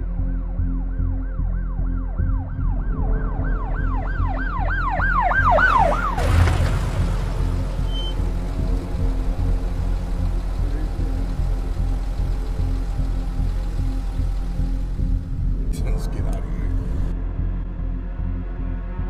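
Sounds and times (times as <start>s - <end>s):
steady low drone: 0.0s - 19.0s
emergency siren yelping: 1.0s - 15.2s.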